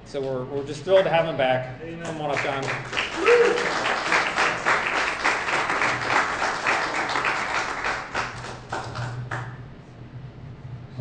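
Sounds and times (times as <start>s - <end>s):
congregation applauding: 2.0s - 9.6s.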